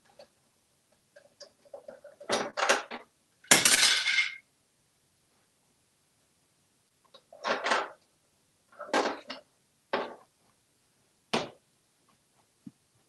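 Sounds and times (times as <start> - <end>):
plastic toys clattering: 1.1 - 4.4, 7.1 - 8.0, 8.7 - 10.3.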